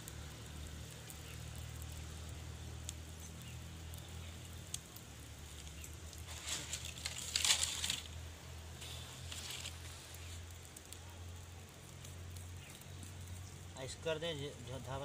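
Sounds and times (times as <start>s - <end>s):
wood fire crackling: 0.0s - 15.0s.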